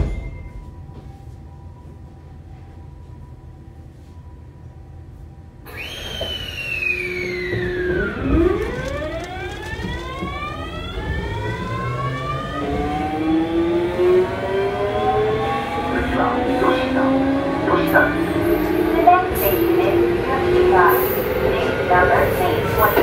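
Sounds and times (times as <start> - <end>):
train motor whine: 5.6 - 23.0.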